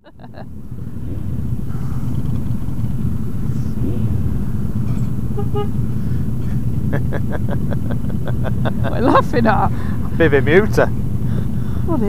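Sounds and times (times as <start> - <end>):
motorcycle engine running: 0.0 - 12.0
vehicle horn toots: 5.0 - 6.2.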